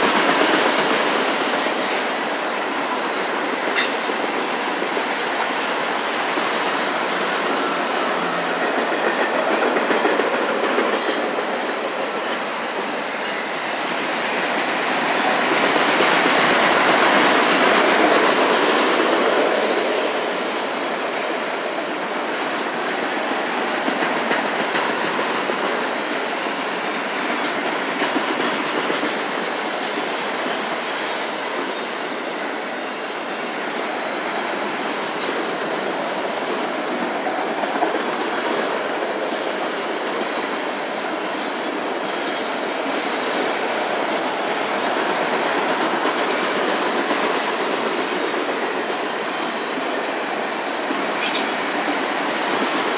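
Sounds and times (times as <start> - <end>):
freight train wheels rumbling on rail: 0.0 - 52.9
high wheel squeals: 5.0 - 8.7.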